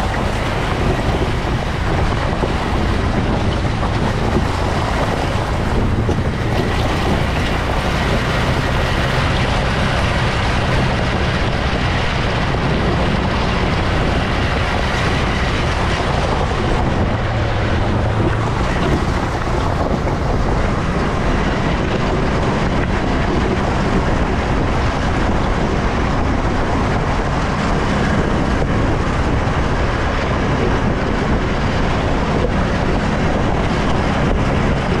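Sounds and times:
atv engine running: 0.0s - 35.0s
wind noise on microphone: 0.0s - 35.0s.

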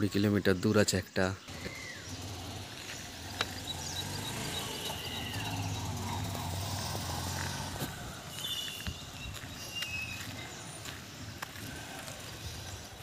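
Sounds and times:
birds chirping: 0.0s - 13.0s
motorcycle engine idling: 1.5s - 8.7s.

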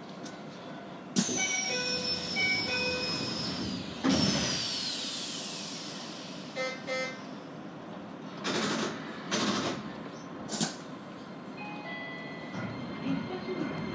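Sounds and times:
hiss of air from door: 4.0s - 6.6s
short beeps: 6.6s - 7.2s.

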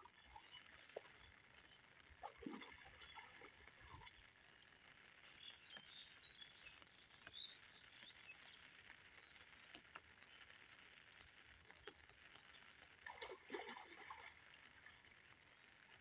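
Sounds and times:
faint bird chirps: 5.0s - 9.5s.

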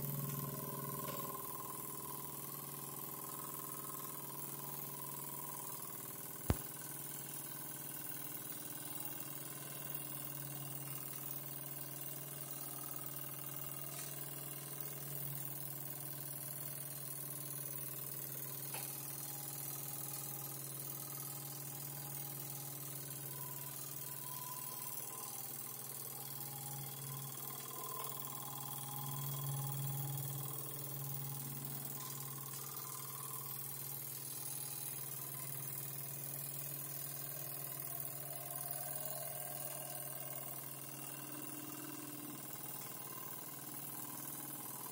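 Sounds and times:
toy steam engine running: 0.0s - 44.9s
sharp click: 6.5s - 6.8s
steady low hum: 16.8s - 44.9s.

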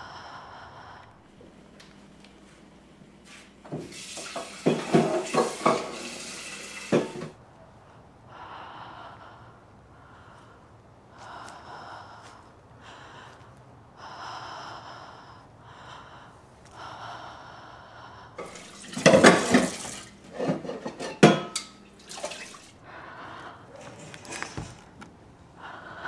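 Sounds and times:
person breathing heavily: 0.0s - 1.5s, 7.7s - 18.4s, 22.8s - 26.0s
water splashing in a sink: 3.7s - 7.3s, 18.4s - 20.2s, 22.0s - 22.8s
dishes clinking: 4.2s - 6.1s, 18.4s - 22.4s.

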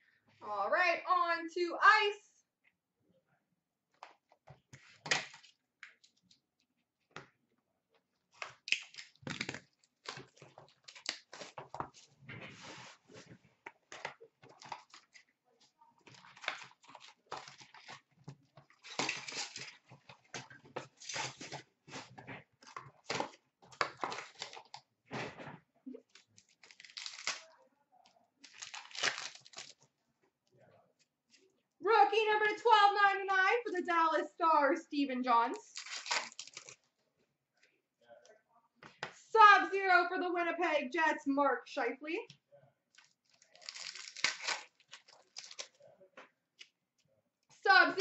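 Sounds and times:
plastic wrap crinkling and tearing: 8.3s - 12.1s, 16.0s - 22.2s, 22.9s - 24.8s, 26.1s - 27.6s, 28.4s - 29.9s, 35.7s - 36.9s, 42.9s - 45.8s.

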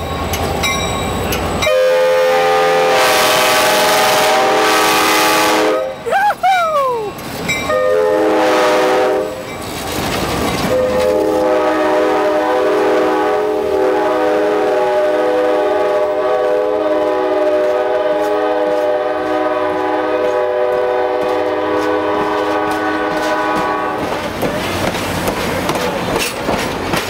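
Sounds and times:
locomotive air horn chord: 1.7s - 6.0s, 7.7s - 9.4s, 10.7s - 24.0s.

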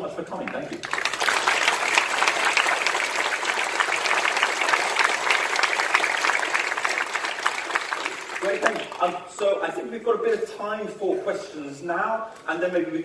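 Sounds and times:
audience applauding: 0.7s - 9.2s.

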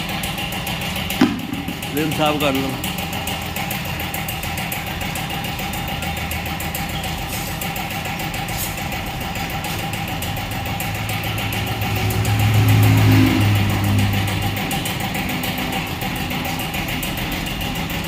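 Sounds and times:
machinery low hum: 1.0s - 4.2s.

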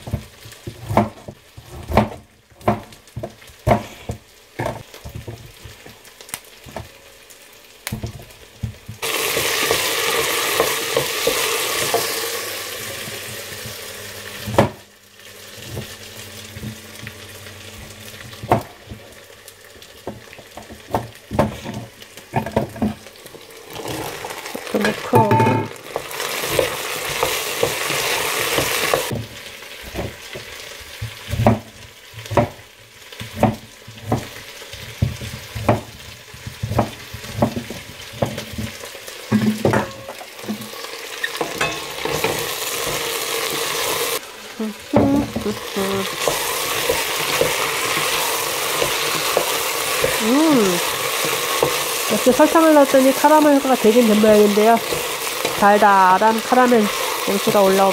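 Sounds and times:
vegetables sizzling in oil: 0.0s - 57.9s
utensils knocking against pot: 24.7s - 29.1s, 36.6s - 43.6s.

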